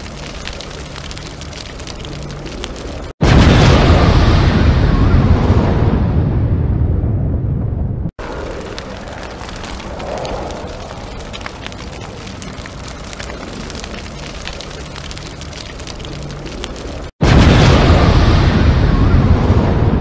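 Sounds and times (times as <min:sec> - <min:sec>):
crackling hiss with pops: 0:00.0 - 0:03.2, 0:08.2 - 0:17.2.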